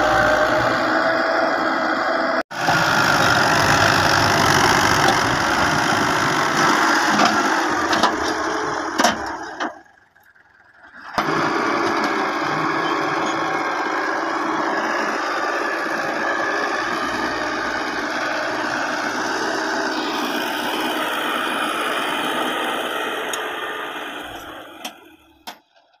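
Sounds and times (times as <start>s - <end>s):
tractor diesel engine under load: 0.0s - 25.9s.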